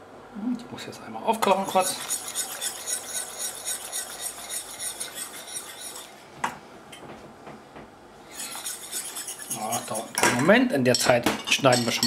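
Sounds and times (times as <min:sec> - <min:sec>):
whisk scraping a metal saucepan: 0:01.4 - 0:06.2, 0:08.3 - 0:10.3.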